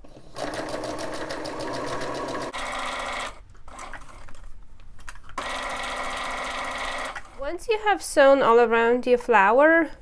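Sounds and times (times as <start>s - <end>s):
sewing machine stitching: 0.1s - 4.2s, 5.4s - 7.4s.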